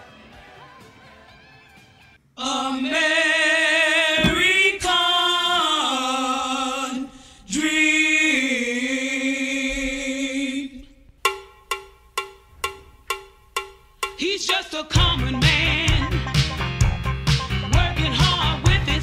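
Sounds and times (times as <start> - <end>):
sharply struck repeated notes: 11.3 - 14.2.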